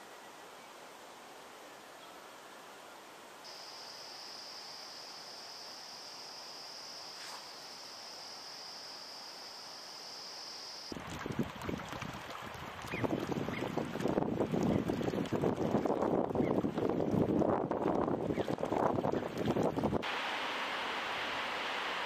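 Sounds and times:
insect trilling: 0:03.5 - 0:10.9
wind buffeting microphone: 0:10.9 - 0:20.0.

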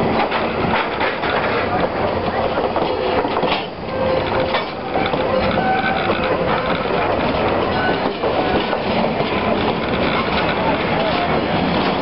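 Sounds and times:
train wheels rumbling on rails: 0:00.0 - 0:12.0
wheel squealing against rail: 0:02.8 - 0:12.0.

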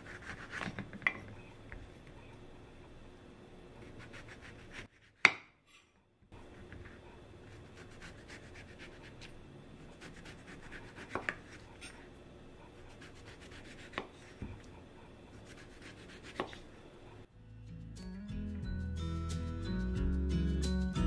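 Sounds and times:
music: 0:17.3 - 0:21.0.

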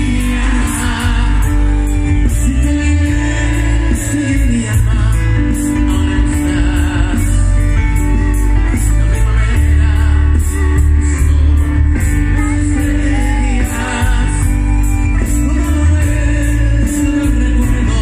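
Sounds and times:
live band playing: 0:00.0 - 0:18.0
man singing: 0:00.0 - 0:18.0.

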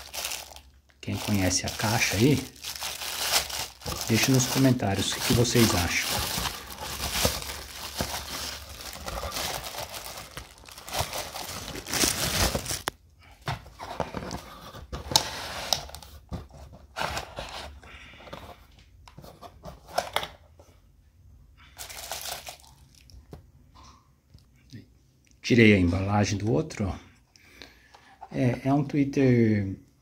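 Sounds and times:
plastic bag crinkling: 0:00.0 - 0:13.0, 0:21.8 - 0:22.8.

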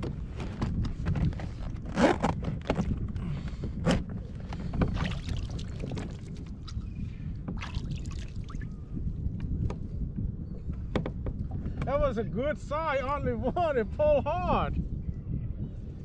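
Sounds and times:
water lapping against plastic hull: 0:00.3 - 0:08.8.

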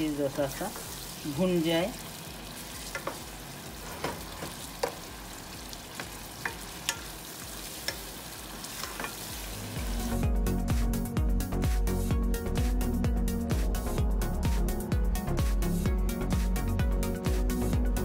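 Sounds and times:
meat sizzling in oil: 0:00.0 - 0:10.4
electronic music with a beat: 0:09.7 - 0:18.0.

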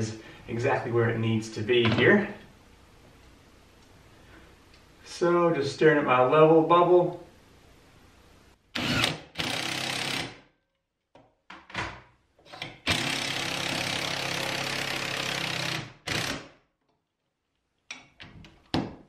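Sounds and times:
impact driver driving screws: 0:12.6 - 0:16.6.

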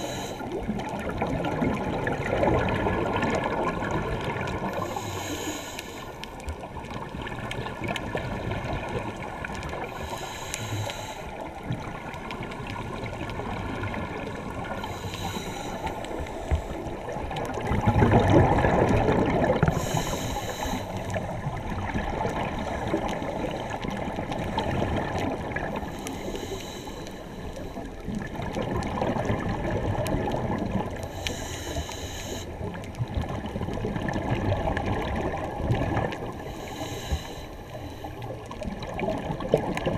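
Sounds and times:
scuba regulator breathing: 0:00.0 - 0:00.6, 0:04.7 - 0:06.5, 0:09.7 - 0:11.7, 0:14.6 - 0:17.2, 0:19.6 - 0:21.4, 0:25.7 - 0:28.0, 0:31.0 - 0:32.8, 0:36.3 - 0:38.6
gurgling bubbles: 0:00.0 - 0:05.5, 0:06.2 - 0:39.9
murky underwater noise: 0:00.0 - 0:39.9.

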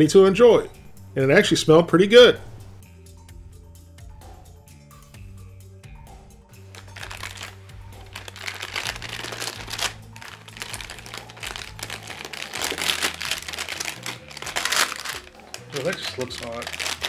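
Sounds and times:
background music: 0:00.0 - 0:17.0
plastic wrapper crinkling: 0:06.7 - 0:17.0.

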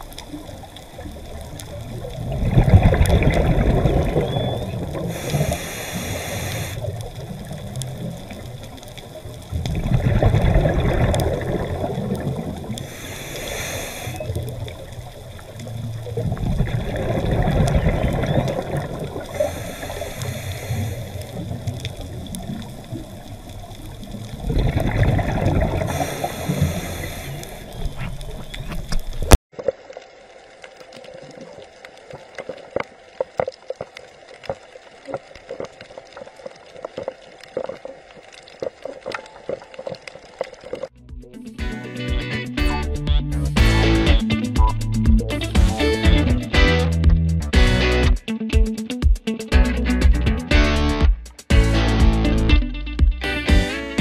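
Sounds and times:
exhaled bubbles gushing: 0:00.0 - 0:41.0
faint underwater clicks: 0:00.0 - 0:41.0
regulator inhalation hiss: 0:05.0 - 0:07.1, 0:12.6 - 0:15.5, 0:18.8 - 0:23.3, 0:25.8 - 0:28.3.

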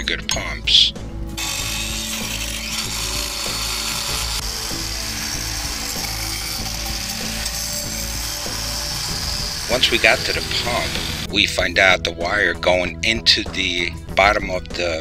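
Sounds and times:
angle grinder cutting concrete: 0:01.4 - 0:11.3.

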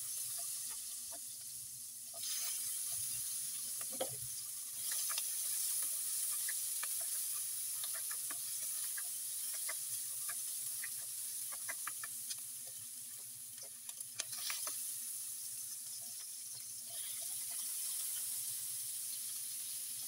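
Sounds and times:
crackles: 0:00.0 - 0:20.0
onions sizzling in oil: 0:00.0 - 0:20.0
spatula scraping: 0:04.8 - 0:12.4.

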